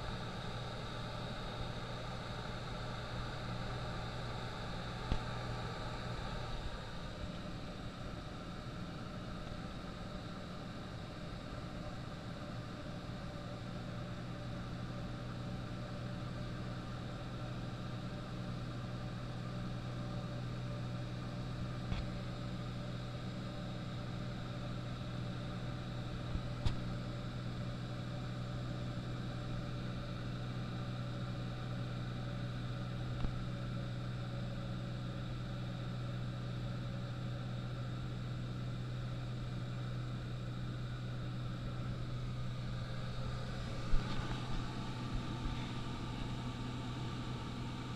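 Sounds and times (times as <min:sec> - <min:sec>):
light aircraft engine drone: 0:00.0 - 0:47.9
airflow noise: 0:41.9 - 0:47.9.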